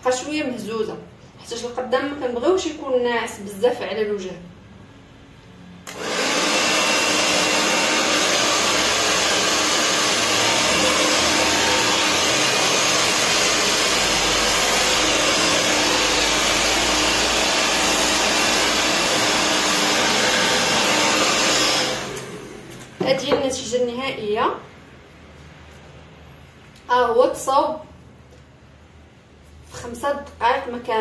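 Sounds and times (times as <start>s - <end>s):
hair dryer blowing air: 5.9s - 23.5s.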